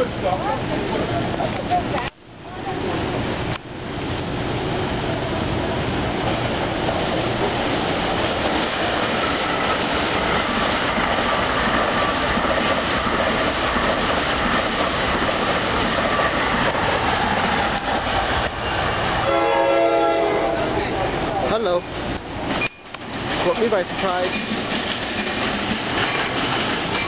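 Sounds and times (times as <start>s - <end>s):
train passing on rails: 0.0s - 27.0s
wheels clickety-clack: 8.3s - 18.1s, 22.5s - 27.0s.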